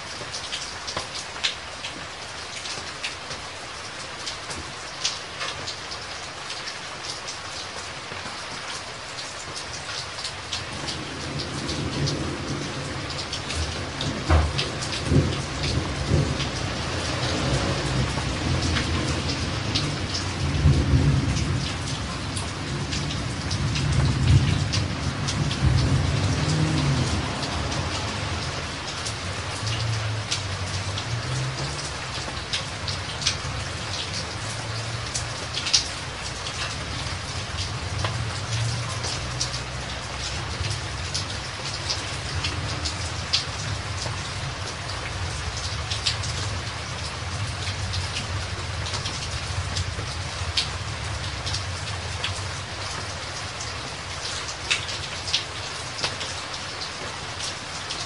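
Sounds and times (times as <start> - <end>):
steady rainfall: 0.0 - 58.0
low rumble of thunder: 10.6 - 53.2.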